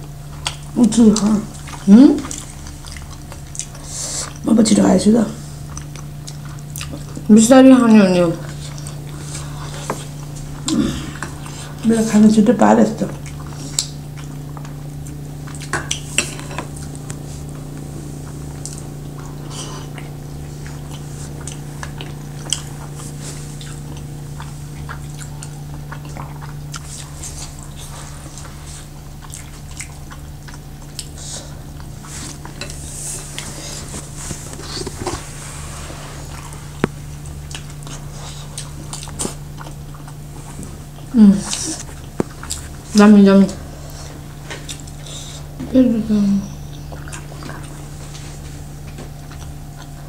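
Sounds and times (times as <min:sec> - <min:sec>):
eating noises: 0:00.0 - 0:50.0
steady low hum: 0:00.0 - 0:50.0.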